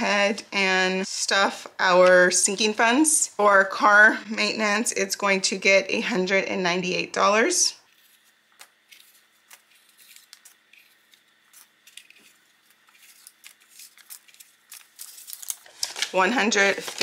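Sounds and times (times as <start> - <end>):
banknotes rustling: 7.9 - 17.0.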